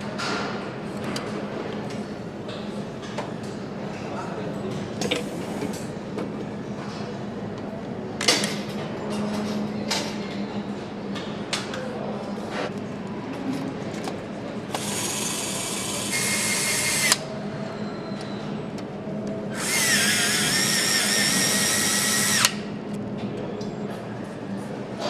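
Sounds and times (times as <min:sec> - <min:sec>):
power nutrunner whirring: 0:14.7 - 0:17.2, 0:19.5 - 0:22.6.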